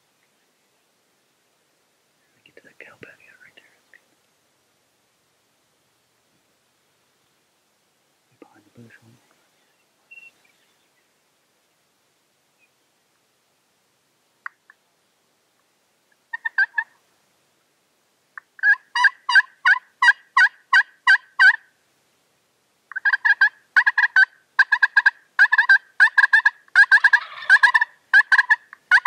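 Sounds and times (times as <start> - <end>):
turkeys calling: 16.3 - 17.0, 18.4 - 21.6, 22.9 - 29.0.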